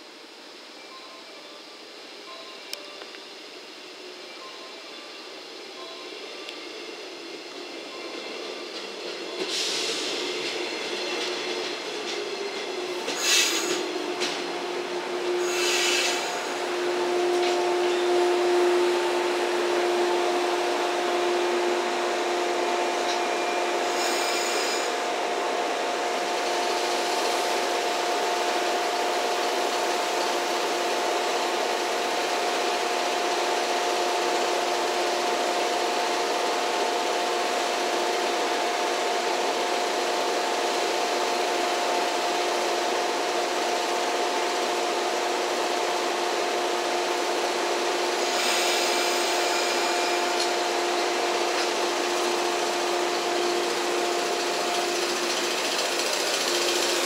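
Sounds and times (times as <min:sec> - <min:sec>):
electric train equipment humming: 0:00.0 - 0:57.0.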